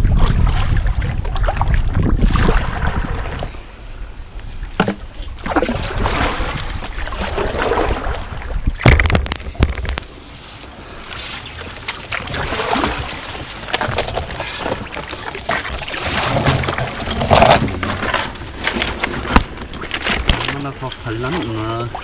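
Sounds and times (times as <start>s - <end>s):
wind rumble on microphone: 0.0s - 10.1s
paddle strokes splashing: 0.0s - 22.0s.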